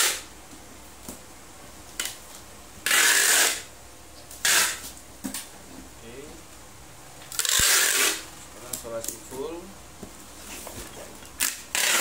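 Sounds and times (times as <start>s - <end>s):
packing tape pulled off dispenser: 0.0s - 0.2s, 2.8s - 3.7s, 4.4s - 4.9s, 7.3s - 8.2s, 11.4s - 12.0s.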